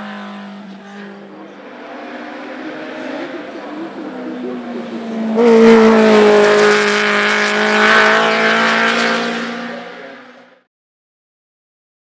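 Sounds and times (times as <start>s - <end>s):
race car engine passing by: 0.0s - 10.7s.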